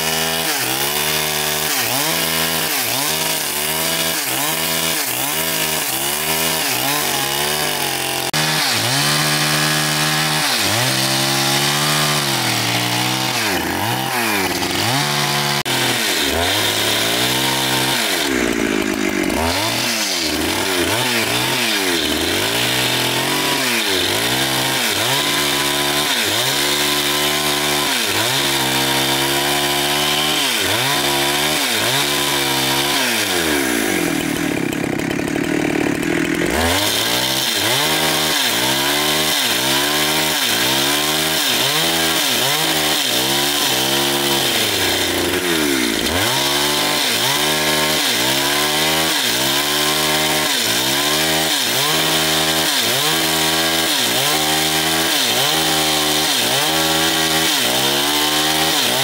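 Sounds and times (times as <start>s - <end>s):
chainsaw cutting log: 0.0s - 59.0s.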